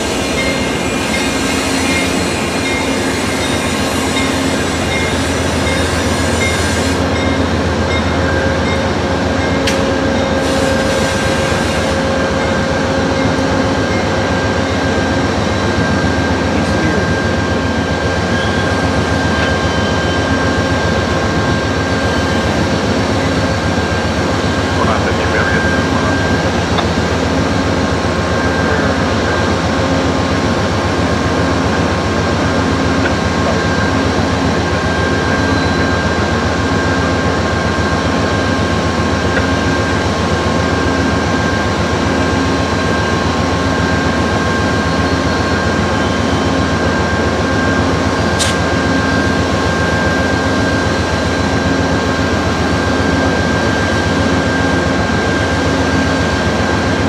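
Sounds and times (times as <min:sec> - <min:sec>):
diesel locomotive idling: 0:00.0 - 0:57.0
sharp click: 0:48.4 - 0:48.6.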